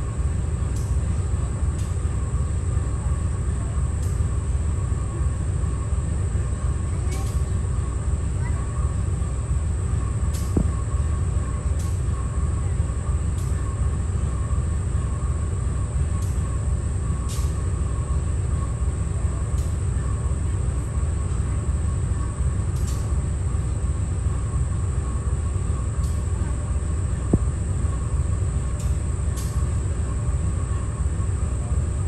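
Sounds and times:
faint steady whine: 0:00.0 - 0:32.0.

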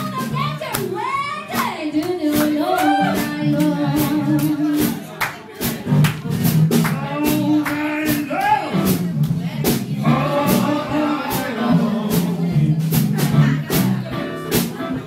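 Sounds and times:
blues band playing: 0:00.0 - 0:15.0
person singing: 0:01.3 - 0:05.0, 0:06.8 - 0:09.0, 0:10.0 - 0:14.0.

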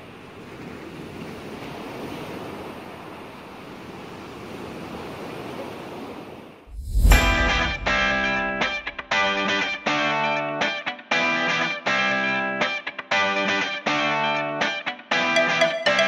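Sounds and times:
ocean surf breaking: 0:00.2 - 0:09.7
low thump: 0:06.7 - 0:09.1
distorted electric guitar music: 0:08.6 - 0:16.0.

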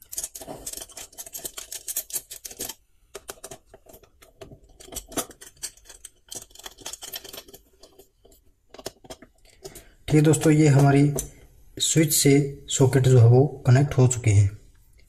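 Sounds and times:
screwdriver clicking and scraping: 0:00.0 - 0:11.4.

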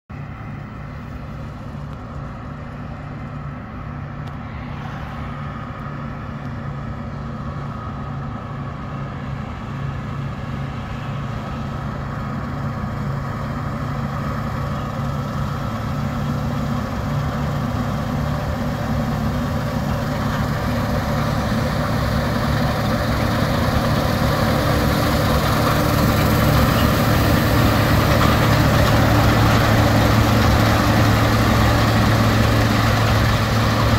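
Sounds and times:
combine harvester engine hum: 0:00.1 - 0:33.9
machinery noise: 0:10.0 - 0:33.9.

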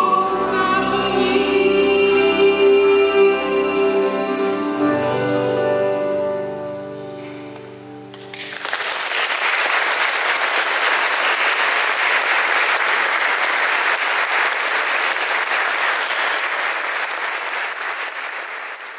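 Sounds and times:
held chord of voices and instruments: 0:00.0 - 0:07.0
audience applause: 0:08.3 - 0:18.9.

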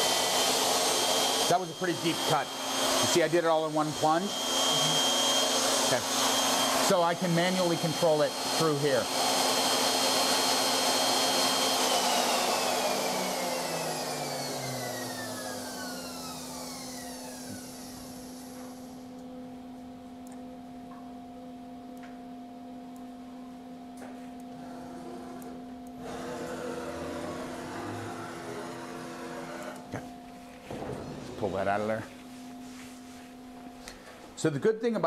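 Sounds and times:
router spindle motor whining: 0:00.0 - 0:19.0, 0:24.6 - 0:30.1
low steady hum: 0:18.8 - 0:26.0, 0:29.8 - 0:35.0.

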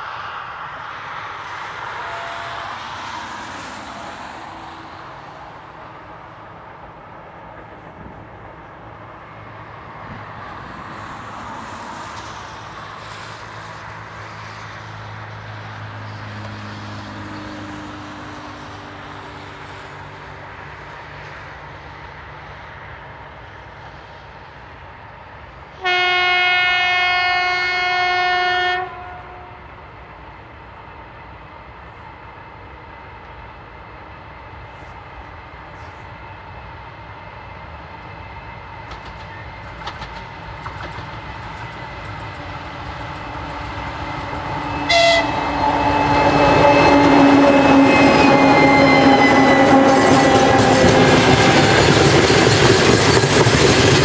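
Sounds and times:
diesel locomotive engines: 0:00.0 - 0:54.0
locomotive horn blast: 0:01.9 - 0:03.1, 0:25.8 - 0:29.6, 0:43.9 - 0:51.9
train wheels clacking over rail joints: 0:38.7 - 0:54.0.

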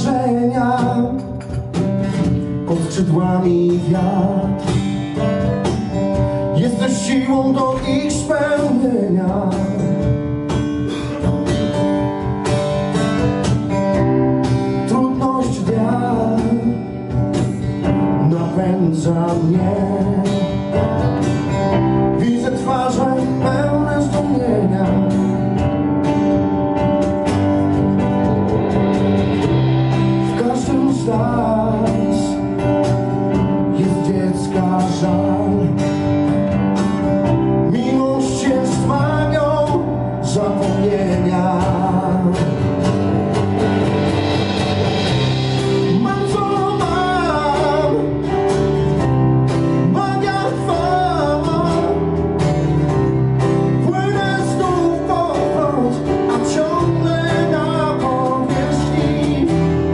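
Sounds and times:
man singing into a microphone: 0:00.0 - 0:05.2, 0:06.2 - 0:10.2, 0:14.6 - 0:25.6, 0:30.2 - 0:36.3, 0:37.4 - 0:43.0, 0:45.8 - 0:48.5, 0:49.7 - 0:52.4, 0:53.6 - 0:59.9
acoustic guitar: 0:00.0 - 0:59.9
keyboard: 0:00.0 - 0:59.9.

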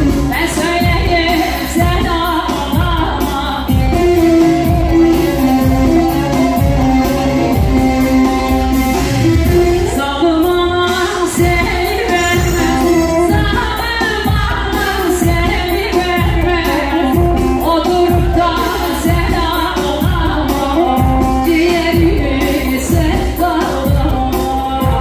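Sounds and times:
heavy drum beat: 0:00.0 - 0:10.0, 0:10.9 - 0:25.0
held band melody: 0:03.7 - 0:19.7
person singing: 0:09.6 - 0:25.0.

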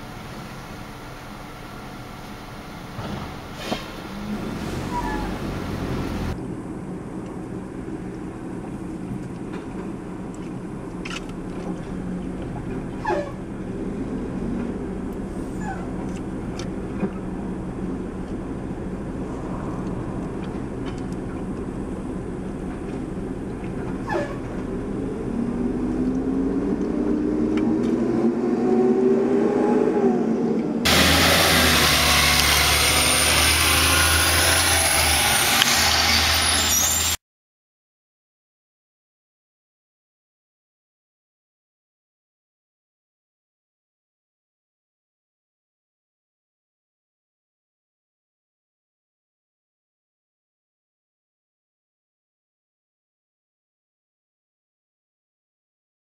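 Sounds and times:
garbage truck engine revving: 0:02.9 - 0:06.4, 0:30.8 - 0:37.2
garbage truck engine running: 0:30.9 - 0:37.1.

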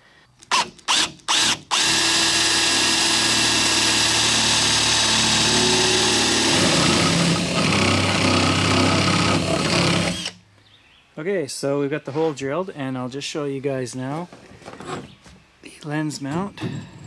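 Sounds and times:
power drill boring through wood: 0:00.5 - 0:10.4.

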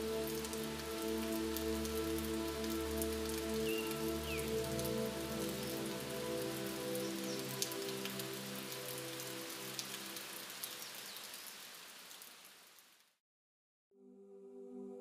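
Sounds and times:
soft sustained music chord: 0:00.0 - 0:09.8, 0:14.0 - 0:15.0
rain hiss: 0:00.0 - 0:13.2.

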